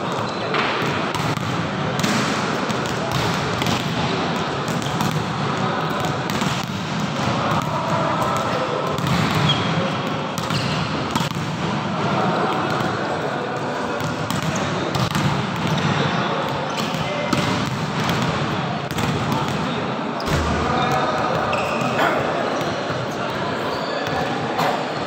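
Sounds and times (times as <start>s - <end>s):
volleyball slaps: 0.5s - 4.0s, 8.3s - 9.6s, 14.0s - 15.9s, 16.8s - 19.6s
indoor hall din: 2.1s - 9.2s, 19.3s - 25.0s.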